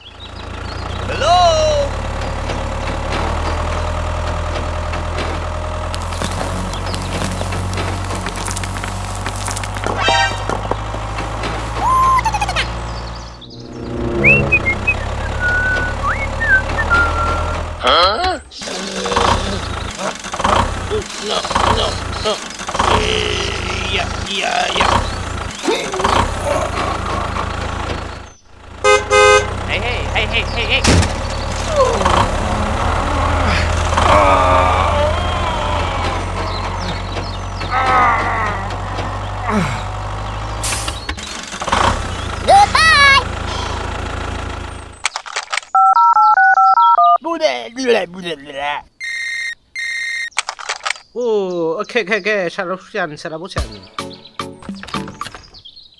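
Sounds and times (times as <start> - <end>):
tractor engine drone: 0.0 - 46.3
whistled bird chirps: 13.4 - 17.6, 49.0 - 50.4
falling squeal: 13.5 - 17.8, 31.4 - 39.4, 49.0 - 50.3.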